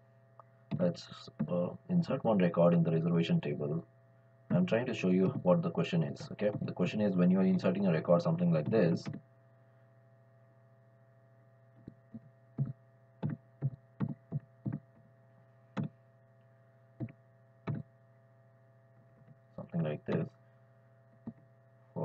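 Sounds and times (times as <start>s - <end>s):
low electrical hum: 0.0s - 22.0s
computer keyboard taps: 11.8s - 14.8s, 17.0s - 17.9s.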